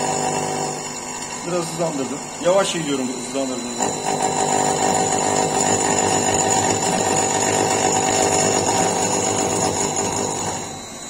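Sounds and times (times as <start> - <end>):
lathe cutting buzz with whine: 0.0 - 11.0.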